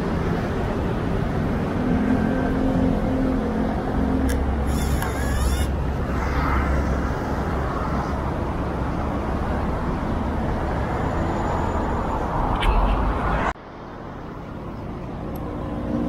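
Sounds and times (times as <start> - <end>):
city traffic rumble: 0.0 - 16.0
camera motor advancing film: 4.3 - 5.7.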